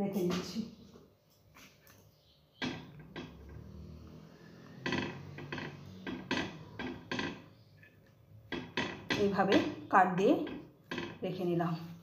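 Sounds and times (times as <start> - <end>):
kitchenware knocking: 8.5 - 11.3.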